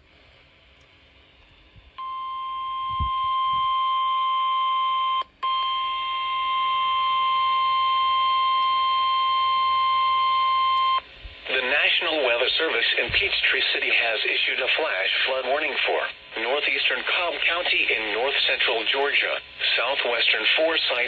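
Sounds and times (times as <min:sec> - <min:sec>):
steady alarm tone from radio speaker: 0:02.0 - 0:11.0.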